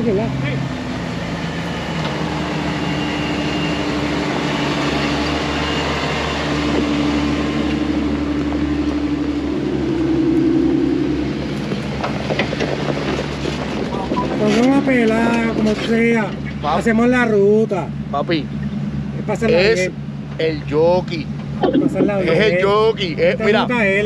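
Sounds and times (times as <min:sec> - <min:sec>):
off-road vehicle engines crawling: 0:00.0 - 0:24.0.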